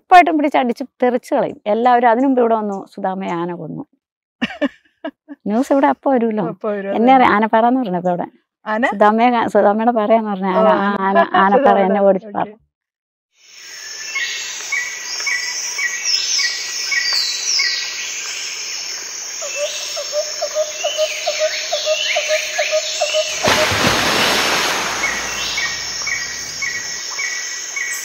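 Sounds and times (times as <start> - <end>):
birds whistling calls: 19.4 - 28.0
burst of rushing noise: 23.4 - 26.9.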